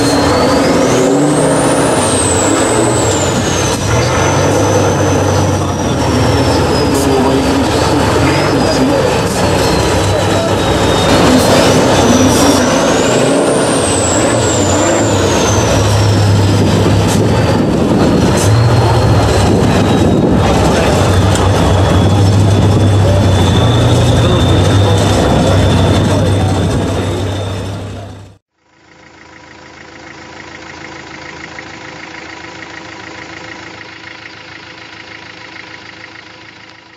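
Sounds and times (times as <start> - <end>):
high whistle: 0.0 - 17.6, 18.2 - 28.4
diesel truck engine under load: 0.0 - 36.9.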